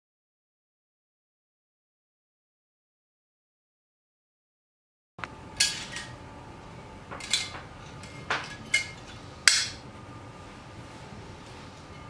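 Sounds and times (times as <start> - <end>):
metal grater parts clinking: 7.2 - 9.8.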